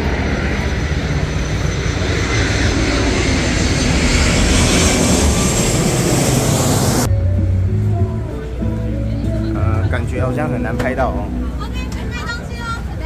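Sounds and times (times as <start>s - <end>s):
passenger plane flying overhead: 0.0s - 13.0s.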